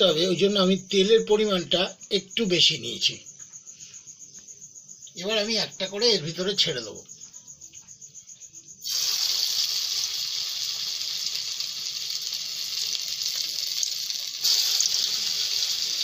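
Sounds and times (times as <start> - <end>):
oil sizzling in a pan: 8.8 - 16.0.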